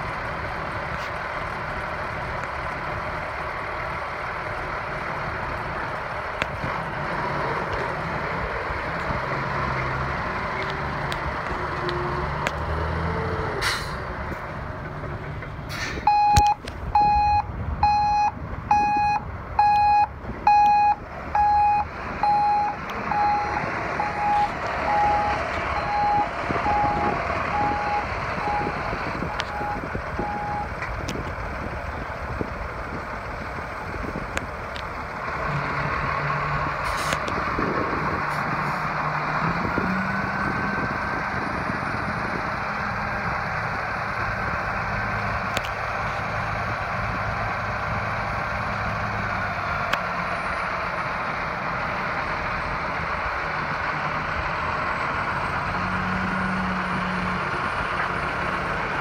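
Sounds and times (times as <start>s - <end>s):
diesel engine running: 0.0s - 59.0s
truck backup alarm beeping: 16.0s - 30.8s.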